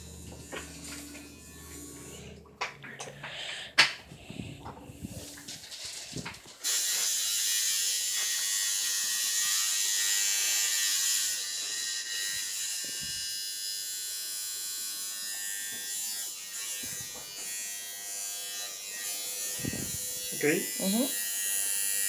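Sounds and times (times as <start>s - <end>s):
tattoo machine buzzing: 0.0s - 2.4s, 6.6s - 22.0s.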